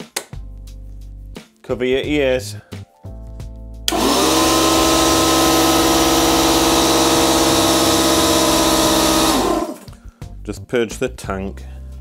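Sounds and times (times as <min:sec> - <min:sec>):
air compressor running: 0:03.9 - 0:09.9.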